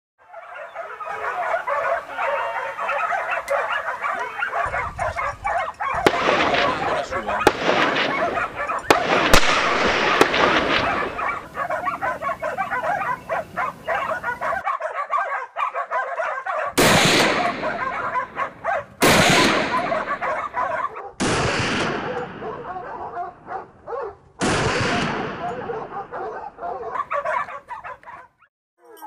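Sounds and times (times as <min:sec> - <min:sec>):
hounds baying and yelping: 0:00.2 - 0:21.2, 0:21.8 - 0:29.0
gunshots echoing: 0:05.9 - 0:14.5, 0:16.7 - 0:23.5, 0:24.4 - 0:26.4.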